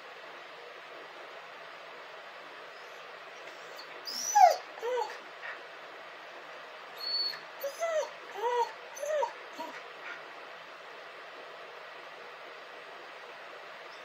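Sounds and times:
dog whimpering: 2.8s - 5.2s, 7.0s - 9.8s
dog crying sharply: 3.6s - 5.2s, 7.0s - 9.8s.

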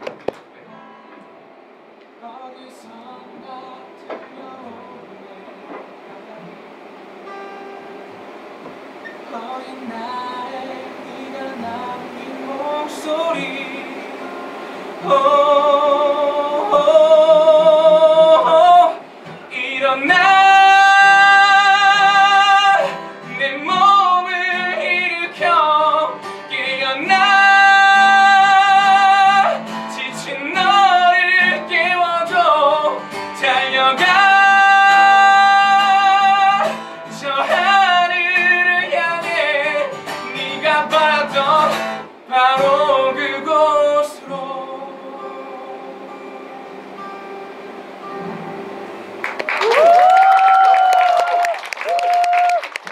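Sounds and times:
acoustic guitar: 0.0s - 52.9s
man singing a ballad: 2.2s - 6.5s, 9.2s - 46.6s.

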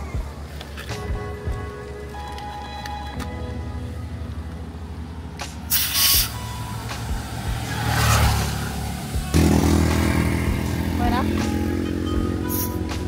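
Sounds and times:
air hissing from tyre valve: 5.6s - 7.4s, 12.5s - 12.8s.

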